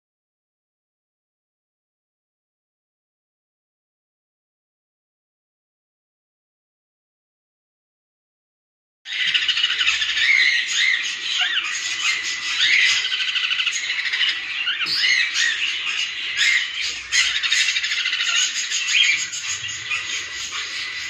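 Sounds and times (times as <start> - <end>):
cockatiels chirping and calling: 9.1 - 21.0.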